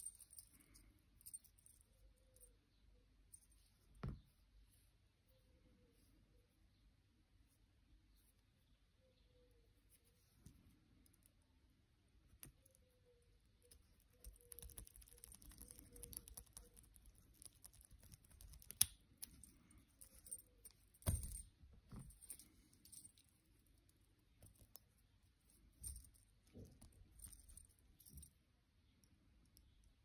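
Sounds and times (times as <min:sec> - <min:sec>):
lock pick clicking and scraping: 0:13.6 - 0:28.3
keys jingling: 0:19.2 - 0:23.4, 0:25.7 - 0:28.3.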